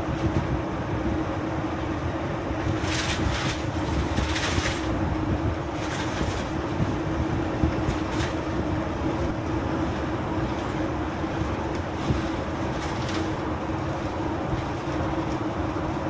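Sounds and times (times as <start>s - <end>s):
car engine and tyre noise: 0.0s - 16.0s.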